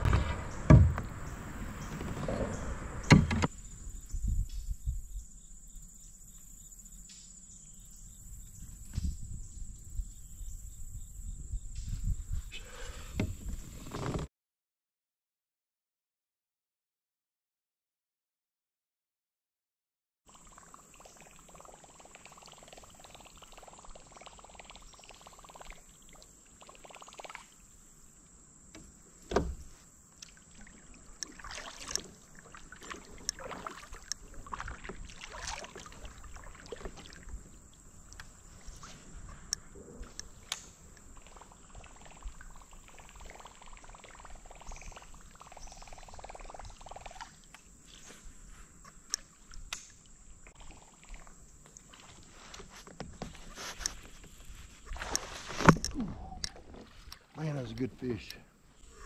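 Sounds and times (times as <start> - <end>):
kayak gear knocks and clicks: 0.0 - 3.5, 28.7 - 30.3, 55.0 - 57.3
sharp thump: 0.0 - 3.5.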